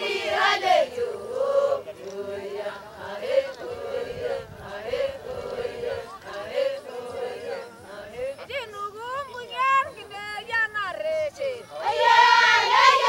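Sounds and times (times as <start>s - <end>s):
group chanting: 0.0s - 8.5s, 11.4s - 13.0s.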